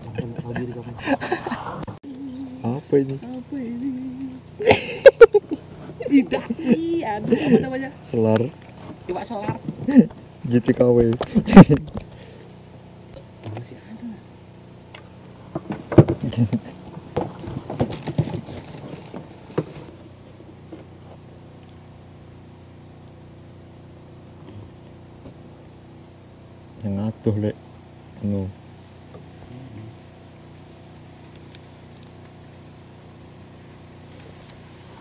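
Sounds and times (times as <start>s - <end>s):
high-pitched insect chorus: 0.0s - 35.0s
loud knocks and handling: 15.5s - 20.1s.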